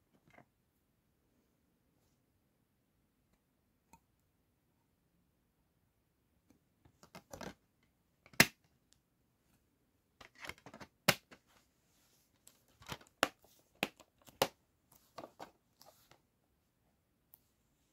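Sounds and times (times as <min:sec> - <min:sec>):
plastic scraping and rattling: 0:10.2 - 0:11.0.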